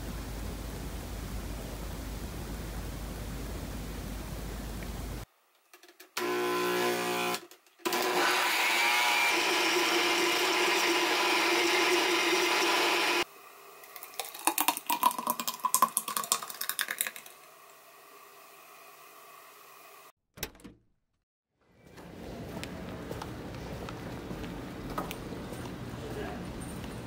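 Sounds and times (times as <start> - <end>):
blender running: 6.2 - 13.3.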